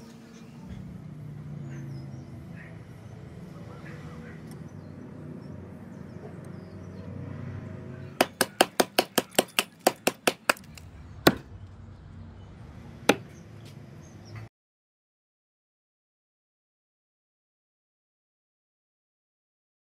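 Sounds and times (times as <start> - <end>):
axe chopping wood: 8.2 - 11.5, 13.1 - 13.3.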